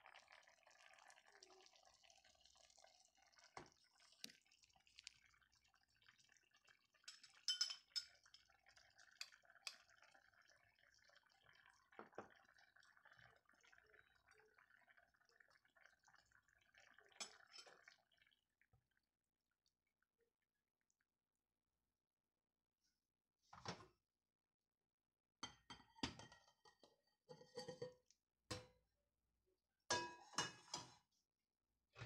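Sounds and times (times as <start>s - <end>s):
pot simmering: 0.0s - 19.8s
kitchenware clinking on pot: 7.1s - 8.4s, 29.9s - 31.0s.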